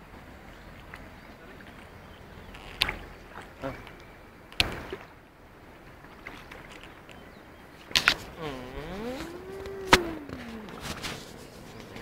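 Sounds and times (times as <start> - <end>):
gliding vocal call: 8.2 - 12.0.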